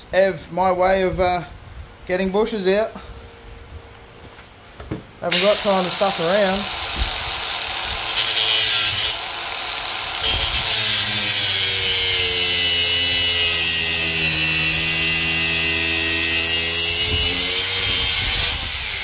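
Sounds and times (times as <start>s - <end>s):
angle grinder grinding rubber: 5.3s - 19.0s.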